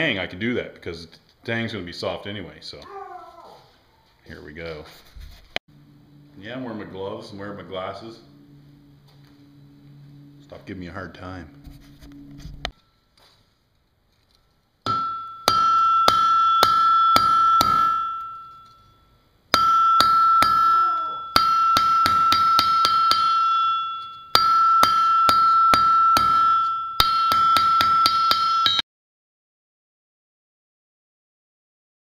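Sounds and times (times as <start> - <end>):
anvil ringing: 14.8 - 28.8
hammer blows on anvil: 14.9 - 28.8.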